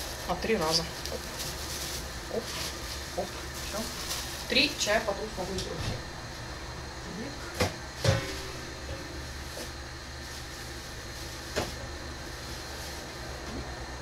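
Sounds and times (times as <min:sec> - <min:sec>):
steady low hum: 0:00.0 - 0:14.0
sharp kitchen knocks: 0:07.6 - 0:08.5.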